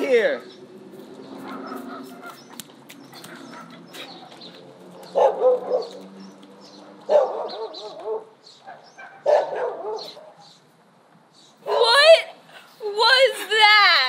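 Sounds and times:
dog barking: 1.5s - 2.4s, 5.1s - 6.1s, 7.1s - 10.5s, 11.6s - 12.0s.

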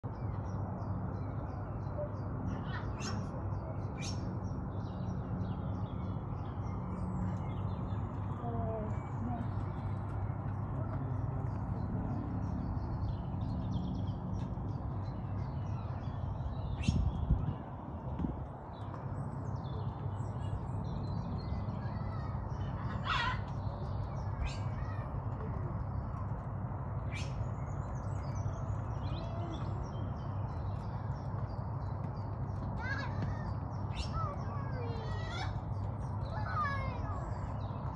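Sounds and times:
small birds chirping: 0.0s - 37.9s
steady low rumble: 2.3s - 37.9s.

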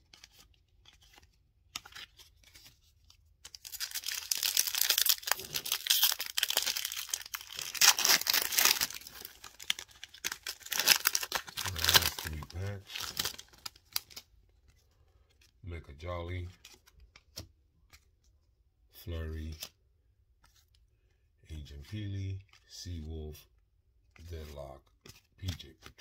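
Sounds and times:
foil wrapper tearing and crinkling: 3.5s - 14.2s.

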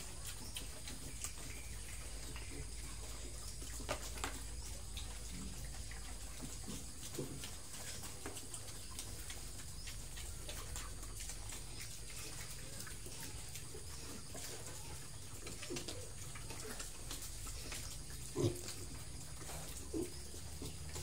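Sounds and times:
piglets chewing and snuffling: 0.0s - 21.0s
soft pig grunts: 4.8s - 21.0s.

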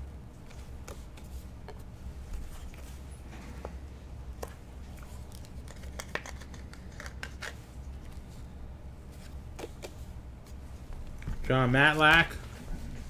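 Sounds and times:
steady low hum: 0.0s - 13.0s
cardboard cards clicking and scraping: 4.4s - 8.2s, 9.2s - 10.6s.

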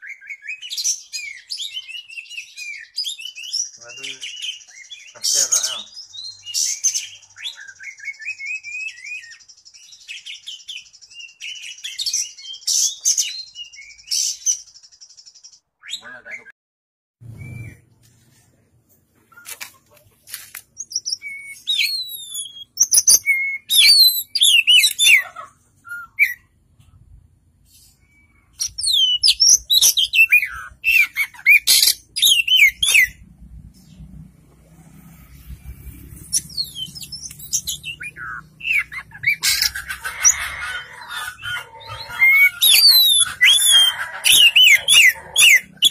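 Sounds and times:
bird singing whistles and chirps: 6.0s - 14.9s, 17.2s - 17.9s, 20.8s - 25.2s, 25.8s - 26.5s, 27.9s - 33.2s, 35.3s - 39.7s, 41.8s - 45.9s.

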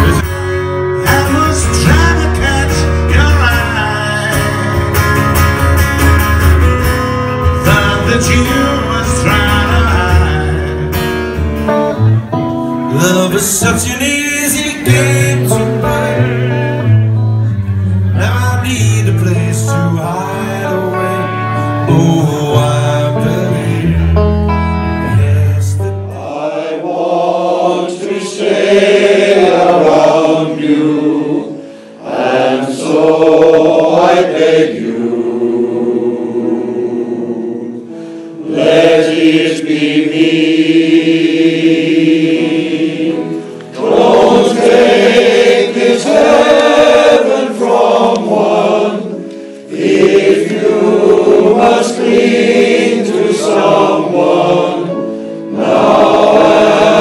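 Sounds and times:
male voice choir singing: 7.6s - 10.9s, 18.2s - 24.1s, 25.1s - 57.0s.

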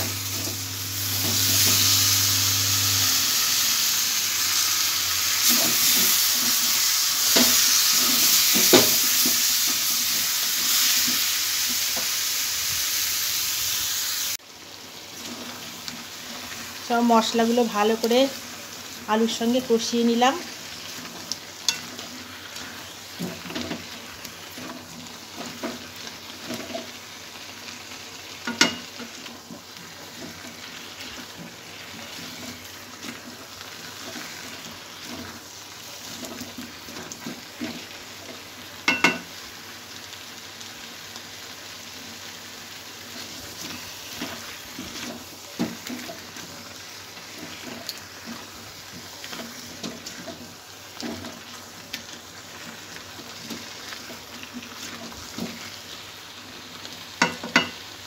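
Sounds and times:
potatoes sizzling in oil: 0.0s - 58.0s
spatula stirring and scraping: 5.4s - 12.2s, 15.1s - 27.5s, 28.3s - 39.4s, 43.0s - 56.0s.

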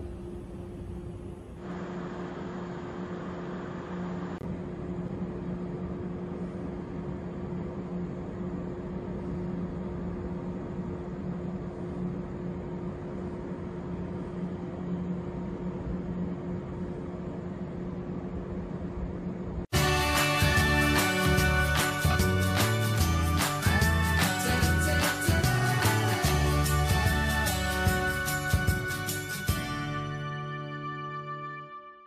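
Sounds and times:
electric train humming: 0.0s - 31.4s.

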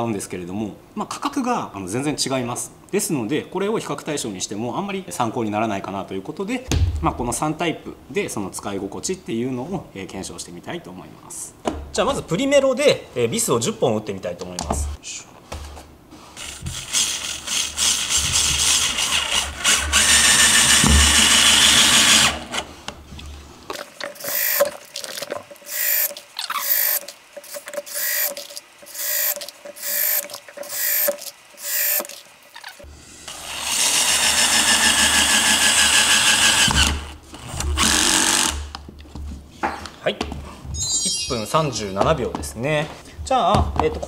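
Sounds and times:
drill driver driving screws: 16.4s - 22.6s, 24.2s - 24.7s, 25.7s - 38.7s.

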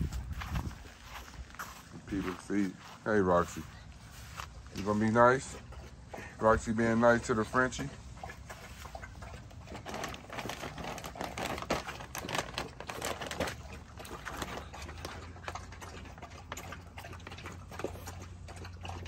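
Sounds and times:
plastic bag crinkling and rustling: 9.7s - 15.1s.

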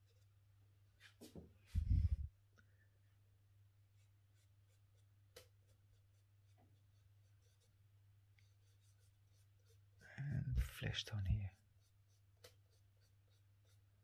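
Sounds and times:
drawing tool scratching on paper: 4.0s - 7.8s, 8.4s - 10.0s, 11.5s - 14.0s.

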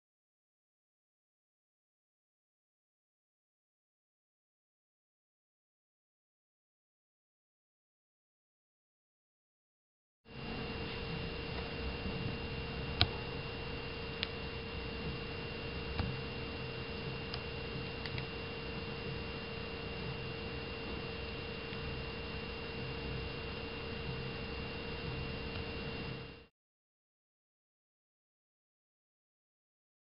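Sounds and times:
electrical hum: 10.3s - 26.5s
thin high whine: 10.3s - 26.5s.

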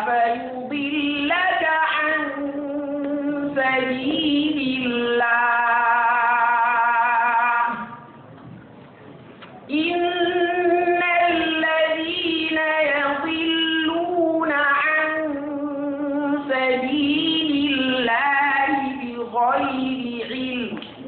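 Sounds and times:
person chanting verses melodically: 9.7s - 20.8s.

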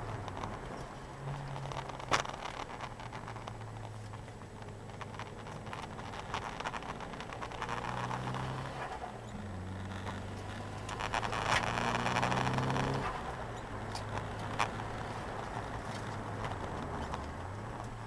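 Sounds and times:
road noise: 0.0s - 18.0s
car engine revving through gears: 4.7s - 18.0s.

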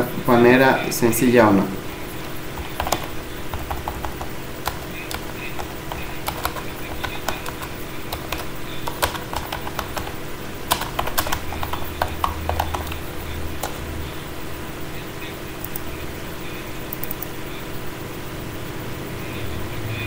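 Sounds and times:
steady low hum: 0.0s - 19.9s
typing on computer keyboard: 1.8s - 14.0s.

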